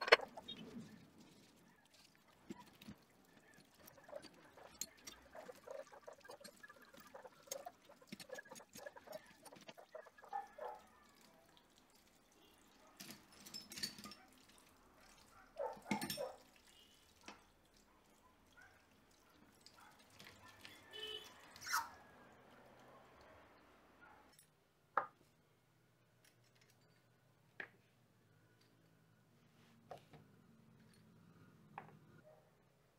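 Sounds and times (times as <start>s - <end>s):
water splashing and dripping: 0.1s - 23.3s.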